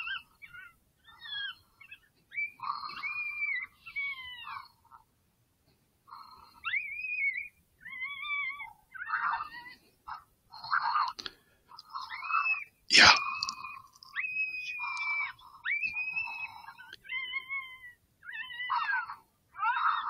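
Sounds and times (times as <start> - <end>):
predator call squeals: 11.9 - 20.0.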